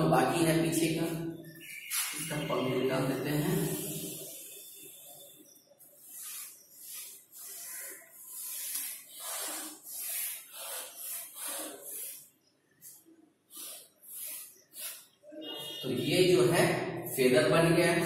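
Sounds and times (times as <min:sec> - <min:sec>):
chalk scraping on blackboard: 0:05.8 - 0:15.8.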